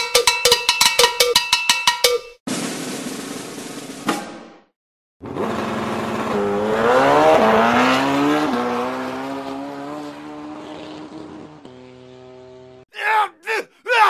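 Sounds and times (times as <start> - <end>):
motorcycle engine revving: 5.2 - 12.8.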